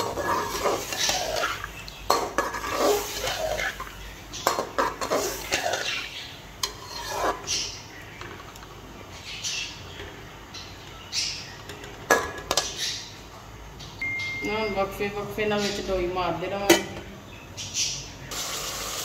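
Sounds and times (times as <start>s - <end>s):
spoon scraping metal pot: 0.0s - 7.8s
chicken frying in fat: 0.0s - 8.8s, 18.2s - 19.0s.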